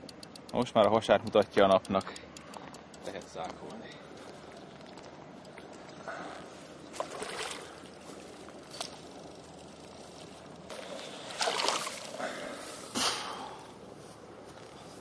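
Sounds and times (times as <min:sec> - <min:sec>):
water sloshing and splashing: 0:04.2 - 0:09.2, 0:10.3 - 0:12.6.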